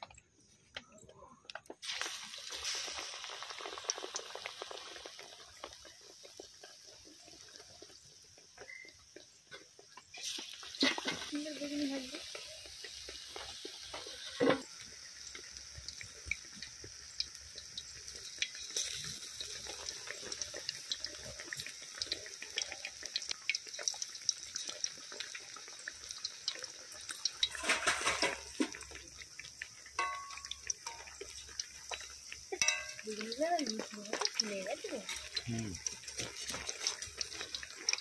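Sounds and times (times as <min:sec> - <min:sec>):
oil popping and crackling: 0:00.0 - 0:38.0
fritters sizzling in hot oil: 0:01.5 - 0:38.0.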